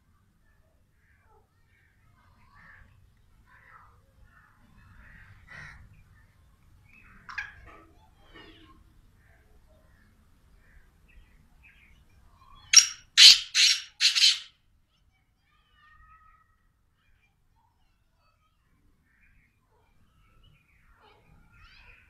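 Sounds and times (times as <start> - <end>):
bird calling harsh notes: 12.7 - 14.5.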